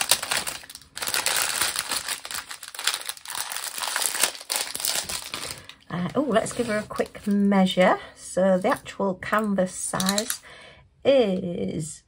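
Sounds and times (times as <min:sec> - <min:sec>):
plastic bags crinkling: 0:00.0 - 0:07.8, 0:10.0 - 0:10.4.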